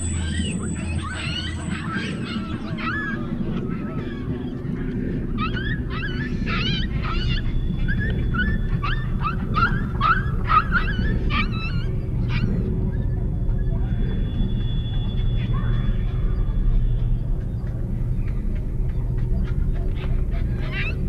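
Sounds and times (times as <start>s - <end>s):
puppy yelping: 0.0s - 4.1s, 5.4s - 13.1s, 20.3s - 21.0s.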